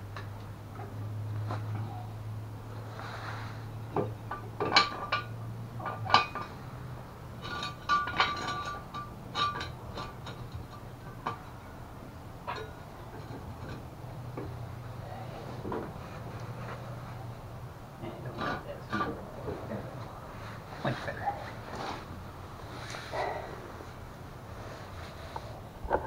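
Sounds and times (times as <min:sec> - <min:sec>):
low steady hum: 0:00.0 - 0:26.0
metal tools clinking: 0:07.4 - 0:11.6, 0:12.4 - 0:13.8.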